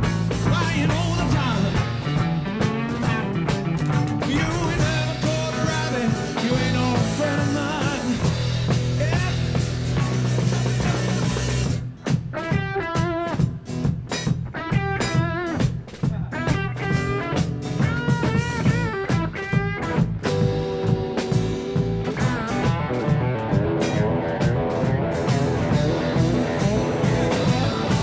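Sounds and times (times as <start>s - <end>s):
drum kit: 0.0s - 28.0s
electric guitar: 0.0s - 28.0s.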